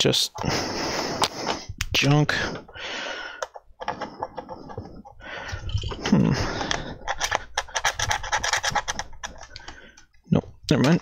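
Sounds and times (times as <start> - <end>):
screwdriver scraping plastic: 3.4 - 10.1.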